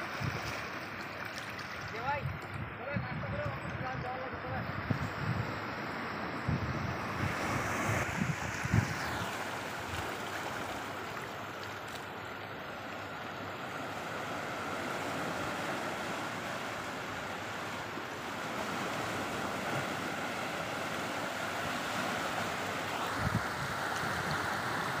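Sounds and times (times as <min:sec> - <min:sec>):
wind buffeting microphone: 0:01.8 - 0:10.2, 0:23.0 - 0:25.0
waves breaking on rocky shore: 0:07.0 - 0:11.9, 0:13.4 - 0:25.0.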